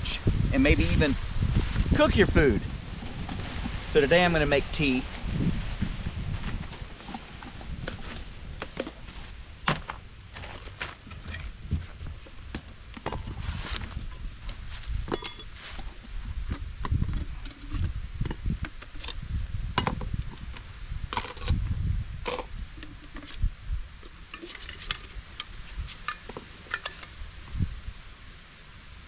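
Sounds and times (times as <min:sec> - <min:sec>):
low bumps and rumbles: 0:00.0 - 0:18.7.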